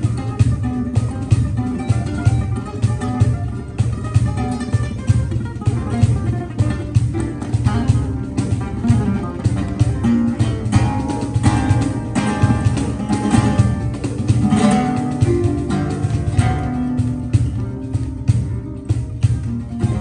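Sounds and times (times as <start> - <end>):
acoustic guitar plucking: 0.0 - 20.0
kora plucking: 0.0 - 20.0.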